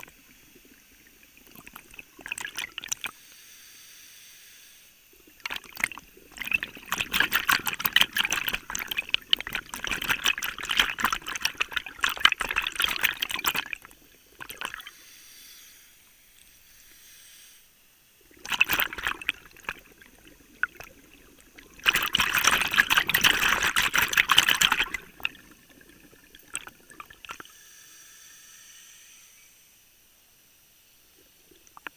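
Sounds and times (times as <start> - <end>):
diver's air bubbles underwater: 0.0 - 3.2, 5.2 - 15.0, 18.2 - 27.5.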